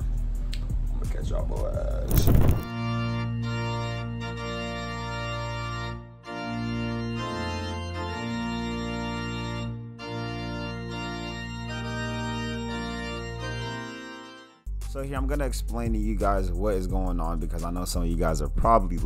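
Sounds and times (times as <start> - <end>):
organ playing slow chords: 2.7 - 14.7.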